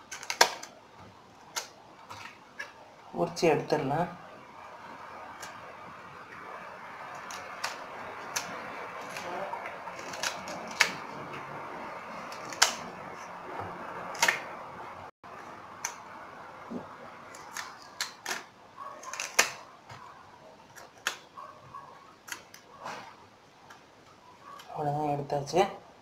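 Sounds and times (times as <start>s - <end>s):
banana stem layers snapping: 0.0s - 0.8s, 1.5s - 2.7s, 5.3s - 5.6s, 7.1s - 11.2s, 12.2s - 13.3s, 14.1s - 14.6s, 17.3s - 19.7s, 20.7s - 21.3s, 22.2s - 22.7s.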